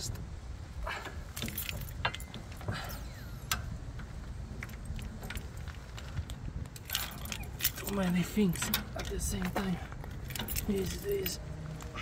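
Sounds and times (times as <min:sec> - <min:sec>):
keys jingling: 0:01.4 - 0:02.4, 0:06.8 - 0:11.4.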